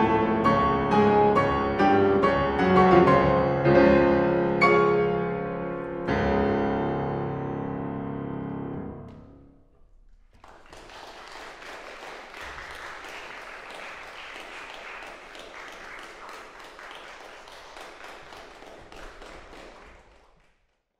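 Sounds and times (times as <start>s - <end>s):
piano chord: 0.0s - 9.8s
audience applause: 10.3s - 20.6s.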